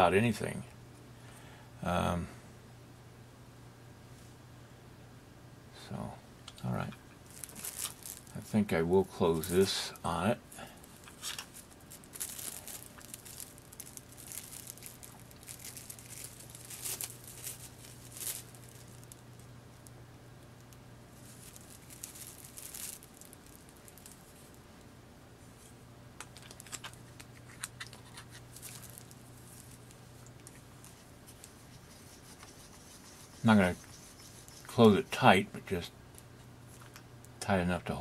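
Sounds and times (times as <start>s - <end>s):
faint low hum: 0.0s - 38.0s
plastic wrap crinkling: 7.2s - 19.9s, 21.1s - 24.6s, 26.2s - 34.8s.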